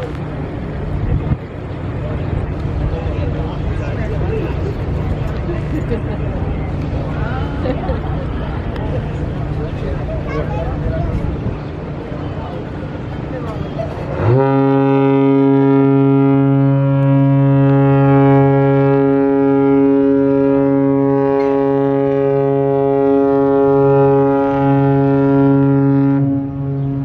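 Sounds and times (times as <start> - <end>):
ship's horn blast: 14.1 - 27.0.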